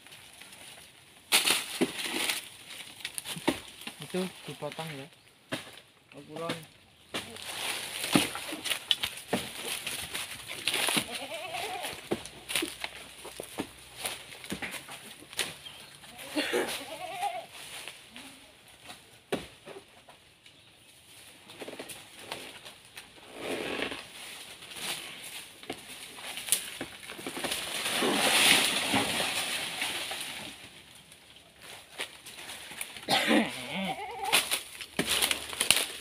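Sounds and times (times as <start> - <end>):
goats bleating: 11.0 - 12.0, 16.1 - 17.5, 33.1 - 34.5.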